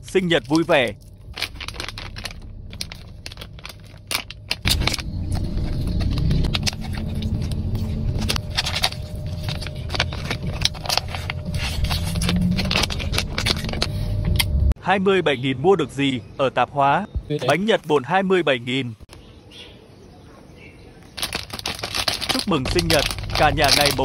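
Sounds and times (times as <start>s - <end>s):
steady low rumble: 0.0s - 14.8s, 21.2s - 24.0s
plastic packaging crinkling: 0.2s - 14.0s, 21.2s - 24.0s.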